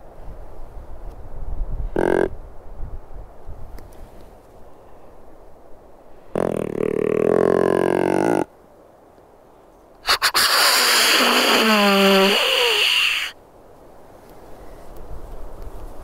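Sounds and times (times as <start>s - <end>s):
deer call snort-wheeze: 10.0s - 13.4s.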